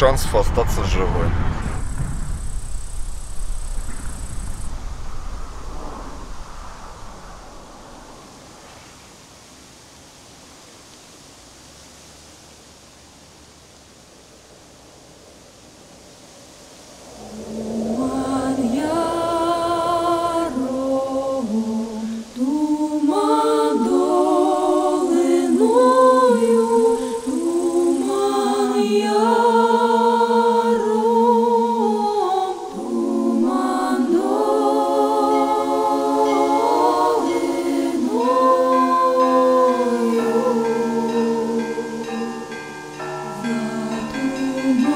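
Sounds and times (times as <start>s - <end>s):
choir singing a cappella: 17.0s - 44.9s.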